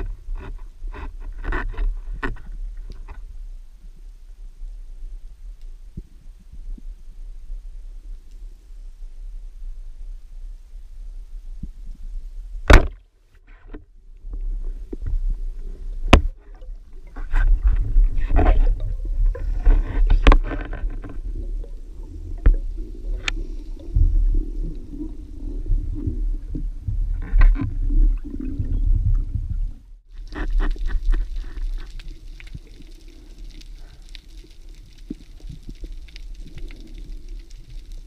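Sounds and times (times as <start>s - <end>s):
underwater rumbling water noise: 13.9s - 38.0s
sharp clicks underwater: 22.4s - 23.6s.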